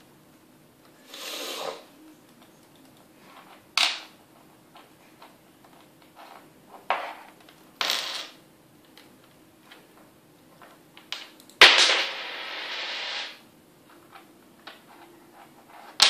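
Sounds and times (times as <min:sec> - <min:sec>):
coins scraping on wooden table: 0:06.2 - 0:08.4, 0:12.2 - 0:13.4.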